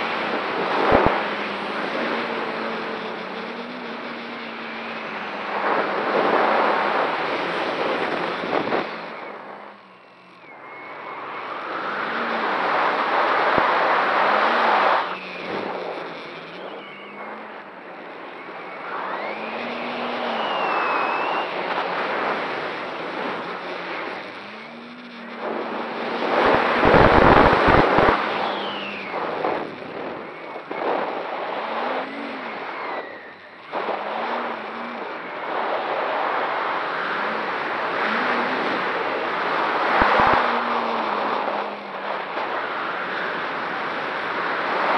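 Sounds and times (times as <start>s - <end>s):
drone propeller whine: 0.0s - 44.9s
rushing air: 4.7s - 43.9s
wind buffeting microphone: 5.0s - 9.8s, 11.1s - 35.9s.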